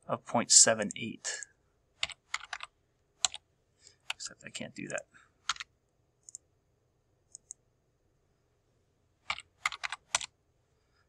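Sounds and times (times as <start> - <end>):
mouse clicks: 5.5 - 6.5, 7.3 - 7.6
keyboard keystrokes: 9.3 - 10.3.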